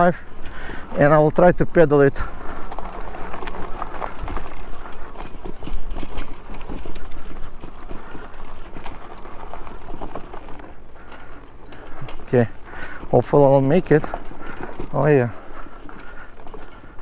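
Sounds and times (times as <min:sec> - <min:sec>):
bike knocking and rattling: 0:00.0 - 0:17.0
tyre and trail noise: 0:00.0 - 0:17.0.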